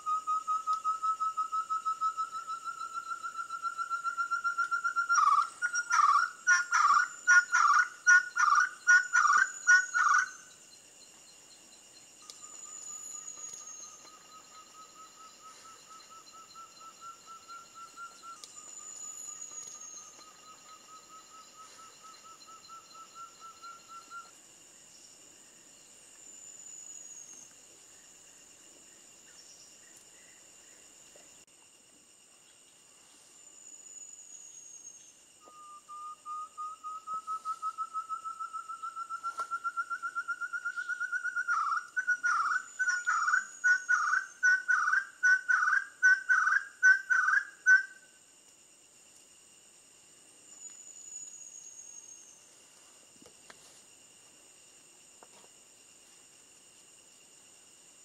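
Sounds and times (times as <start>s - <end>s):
partridge calling: 5.0s - 10.3s.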